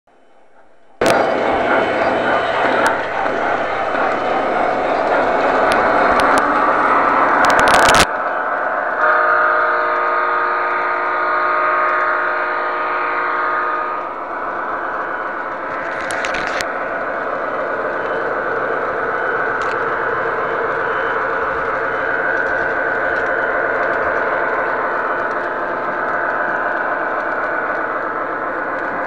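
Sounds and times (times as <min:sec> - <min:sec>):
model train rumbling on track: 0:00.8 - 0:29.0
loud rushing noise: 0:01.0 - 0:09.0
model train horn chord: 0:09.0 - 0:14.1.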